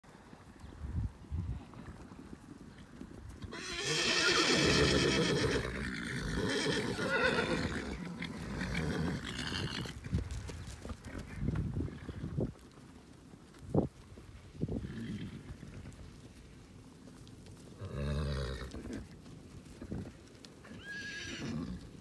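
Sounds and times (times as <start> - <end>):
horses whinnying: 3.4 - 10.0, 17.8 - 19.0, 20.7 - 21.9
hoofbeats thudding on grass: 9.6 - 22.0.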